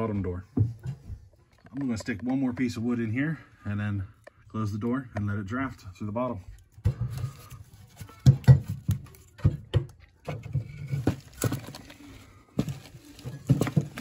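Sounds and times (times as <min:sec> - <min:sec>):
rustling: 0:10.6 - 0:14.0.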